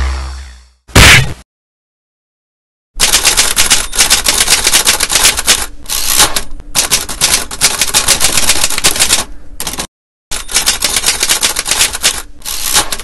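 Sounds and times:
typewriter keys clacking: 3.0s - 6.2s, 6.8s - 13.0s.

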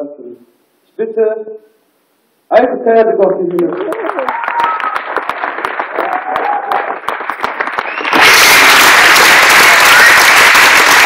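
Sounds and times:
audience applause: 3.6s - 11.0s.

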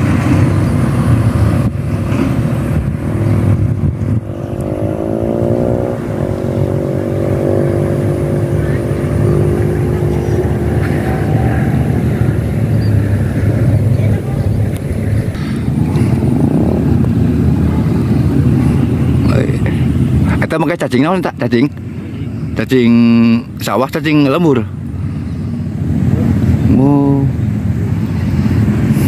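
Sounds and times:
low rumble: 0.0s - 20.5s
vehicle engine revving: 0.0s - 29.0s.

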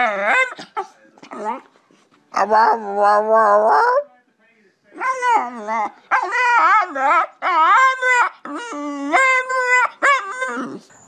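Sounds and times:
dog howling: 5.0s - 10.8s.

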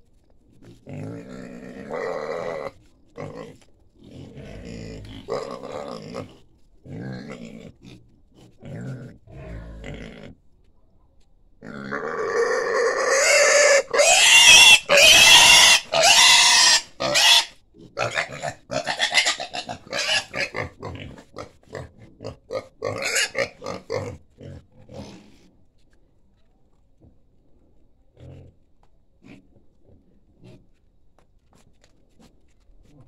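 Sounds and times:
pig grunting: 0.6s - 10.4s, 11.6s - 25.5s
pig squealing: 1.0s - 3.4s, 11.6s - 24.2s.

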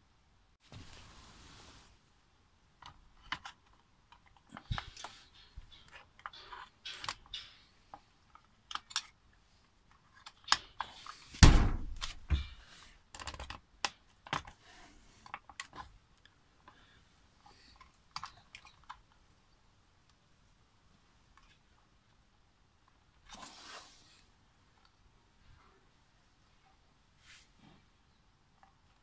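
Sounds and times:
plastic and metal parts clicking: 2.8s - 11.3s, 12.0s - 19.2s.

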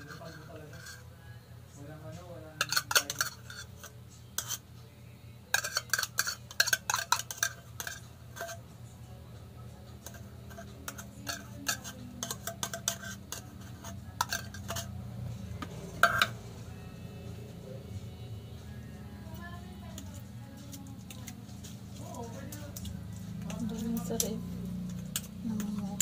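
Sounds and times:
metal spoon scraping a can: 0.0s - 1.1s, 2.5s - 4.7s, 5.5s - 8.7s, 10.0s - 16.4s.

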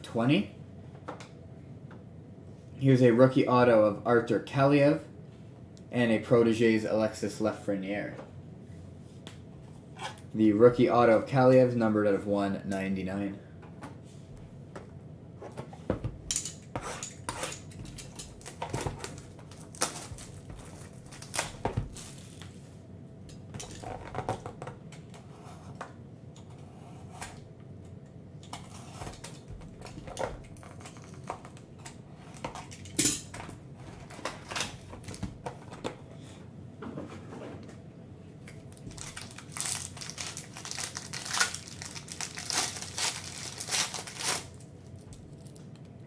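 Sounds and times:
shrink wrap crinkling: 17.5s - 22.6s, 29.2s - 31.6s, 38.6s - 45.9s.

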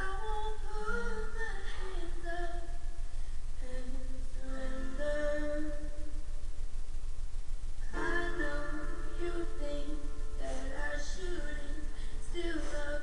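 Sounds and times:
woman singing slow song: 0.0s - 6.3s, 7.8s - 13.0s
musical backing: 7.8s - 13.0s.

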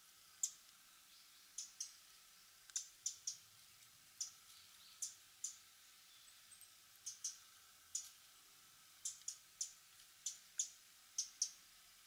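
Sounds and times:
bird clicking calls: 1.6s - 2.0s, 2.7s - 3.4s, 7.0s - 7.4s, 9.0s - 11.6s.

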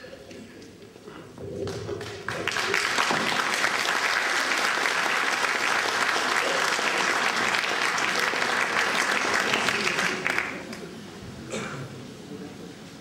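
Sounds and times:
audience applause: 1.6s - 10.9s.

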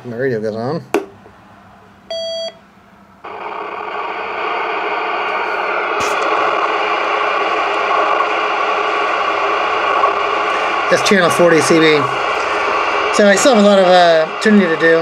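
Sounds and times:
transceiver power-on beep: 2.1s - 2.6s
receiver static hiss: 3.2s - 15.0s.

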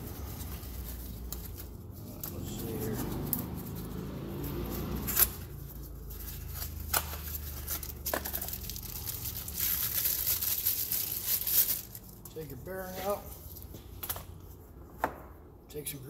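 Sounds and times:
packaging rustling: 4.7s - 13.8s.

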